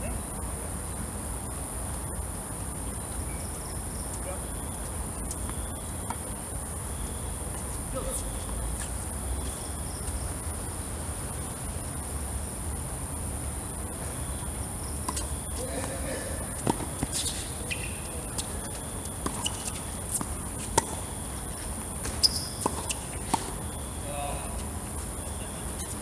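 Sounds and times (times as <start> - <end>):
night insects chirring: 0.0 - 26.0
tennis ball bouncing on court: 14.9 - 23.7.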